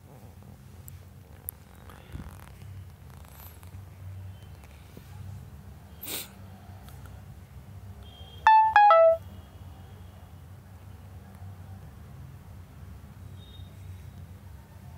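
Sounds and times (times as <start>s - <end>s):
phone notification chime: 8.5s - 9.2s.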